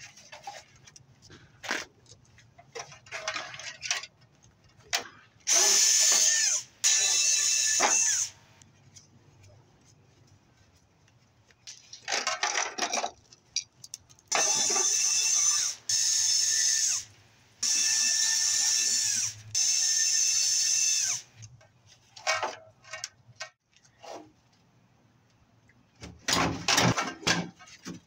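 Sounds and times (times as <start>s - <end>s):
cordless drill whine: 5.5s - 8.4s, 14.3s - 21.3s.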